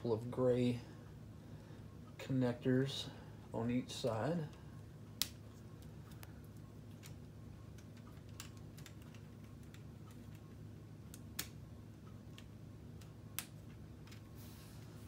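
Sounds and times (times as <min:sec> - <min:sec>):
plastic pieces clicking together: 0:07.8 - 0:10.5.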